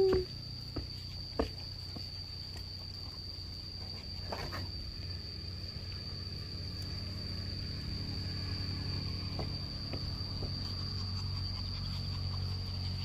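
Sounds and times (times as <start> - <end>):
high-pitched insect drone: 0.0 - 13.0
low hum: 3.3 - 13.0.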